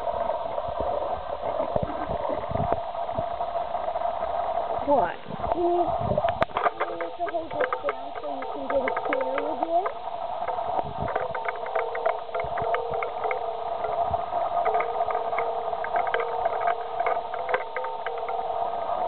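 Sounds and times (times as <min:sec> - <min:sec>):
steady engine drone: 0:00.0 - 0:19.0.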